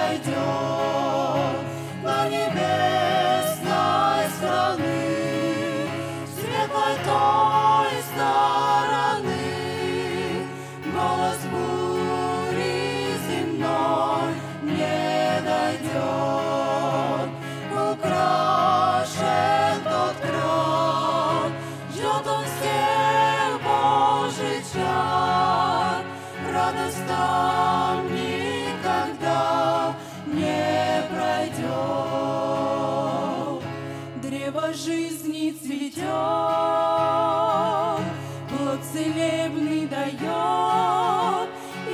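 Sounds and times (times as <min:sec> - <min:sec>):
group singing a hymn: 0:00.0 - 0:41.9
singers breathing: 0:01.6 - 0:02.1, 0:10.4 - 0:10.9, 0:21.6 - 0:21.9, 0:26.1 - 0:26.4, 0:30.0 - 0:30.3, 0:33.8 - 0:34.2, 0:38.2 - 0:38.5, 0:41.5 - 0:41.8.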